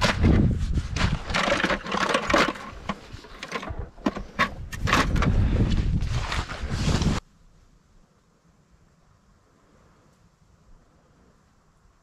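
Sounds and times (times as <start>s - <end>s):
wind rumbling on microphone: 0.0s - 1.8s, 2.7s - 7.3s
fishing gear rattling in bucket: 1.0s - 5.4s
footsteps crunching in snow: 5.4s - 7.2s.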